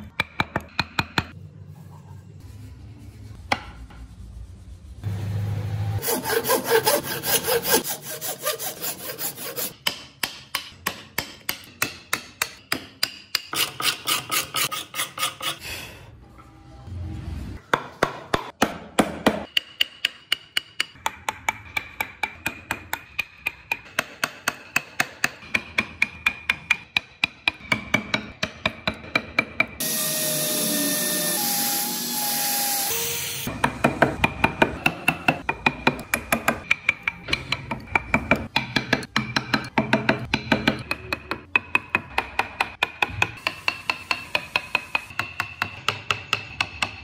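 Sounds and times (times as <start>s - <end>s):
hand saw cutting wood: 6.0s - 9.8s, 13.5s - 15.6s.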